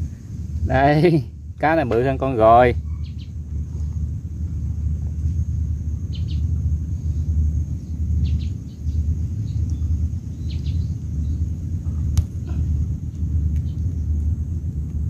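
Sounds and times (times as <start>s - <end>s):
wind rumble on microphone: 0.0s - 15.0s
bird chirping: 2.8s - 4.0s, 6.0s - 11.6s.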